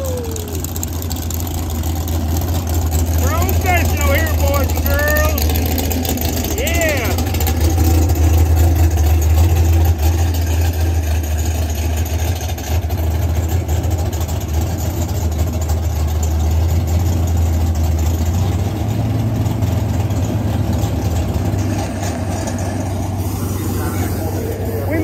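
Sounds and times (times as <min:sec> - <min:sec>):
car engine idling rumble: 0:00.0 - 0:25.0.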